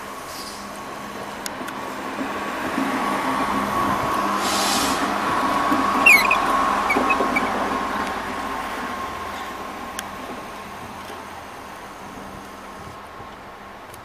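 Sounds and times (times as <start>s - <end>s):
diesel train engine hum: 0.0s - 14.0s
brief hiss: 4.4s - 5.1s
wheel squeals: 6.0s - 7.6s.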